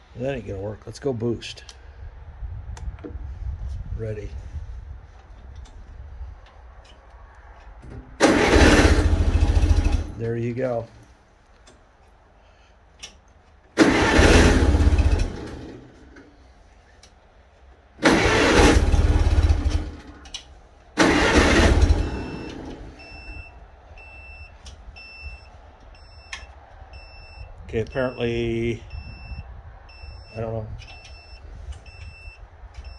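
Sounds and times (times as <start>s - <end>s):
tractor engine cranking: 7.8s - 10.5s, 13.0s - 16.4s, 18.0s - 28.2s
short high beeps: 28.9s - 32.9s.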